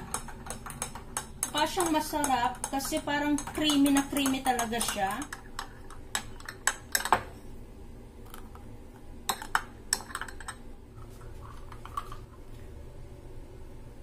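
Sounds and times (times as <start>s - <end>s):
metal spoon tapping glass mug: 0.0s - 7.3s.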